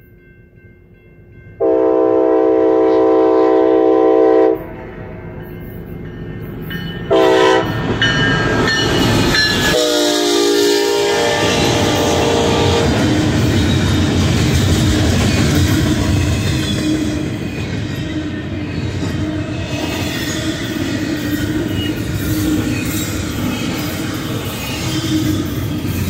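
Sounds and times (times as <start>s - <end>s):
locomotive horn: 1.6s - 4.8s, 7.1s - 7.8s, 9.7s - 13.3s
train wheels clattering on rails: 5.4s - 9.8s, 10.6s - 26.0s.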